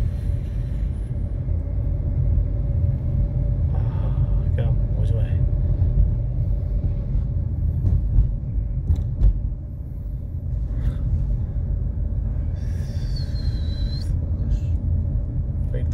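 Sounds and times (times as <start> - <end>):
car driving rumble inside cabin: 0.0 - 15.9
high wavering whistle-like tone: 12.6 - 14.2.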